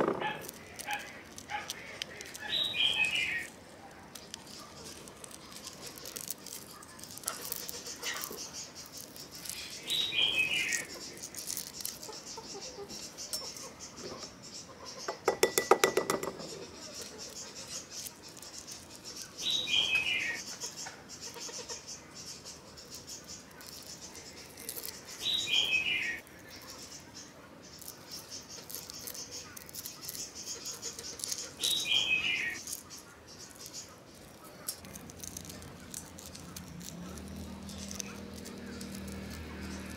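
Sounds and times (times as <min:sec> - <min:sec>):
egg shells crackling: 0:00.0 - 0:13.8, 0:15.1 - 0:21.8, 0:22.9 - 0:27.1, 0:27.7 - 0:39.9
bird chirp: 0:00.0 - 0:39.9
eggs clicking against glass bowl: 0:15.1 - 0:16.5.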